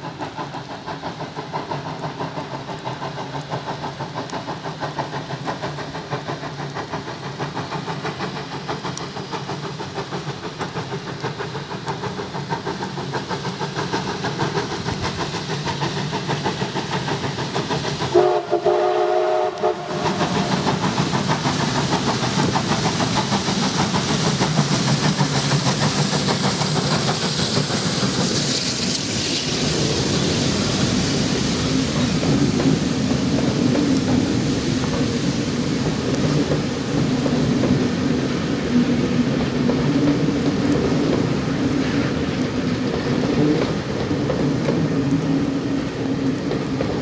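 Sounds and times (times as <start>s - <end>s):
passenger coaches rolling past: 0.0s - 47.0s
steam locomotive exhaust beats: 0.0s - 47.0s
steam whistle: 18.1s - 20.4s.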